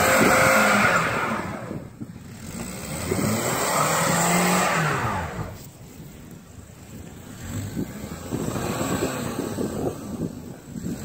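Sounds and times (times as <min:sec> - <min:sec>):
car engine revving: 0:00.0 - 0:05.7
tire spinning in snow: 0:00.0 - 0:11.0.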